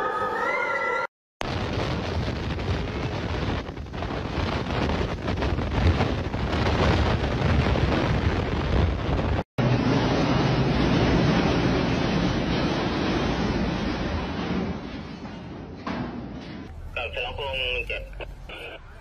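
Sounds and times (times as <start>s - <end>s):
wind buffeting microphone: 1.4s - 15.8s
storm wind gusting: 1.4s - 19.0s.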